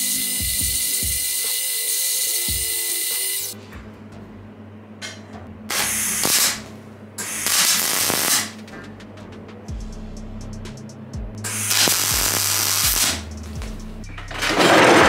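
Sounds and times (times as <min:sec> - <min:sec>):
welding arc crackling: 0:00.0 - 0:03.6, 0:05.7 - 0:08.6, 0:11.4 - 0:15.0
steady low hum: 0:03.6 - 0:15.0.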